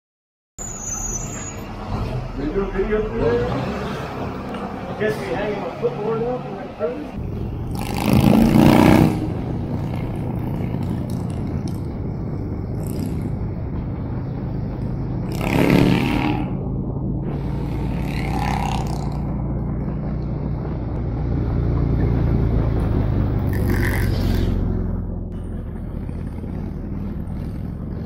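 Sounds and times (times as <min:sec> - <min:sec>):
wind rushing: 0:07.2 - 0:18.1
motorcycle engine running: 0:07.2 - 0:28.0.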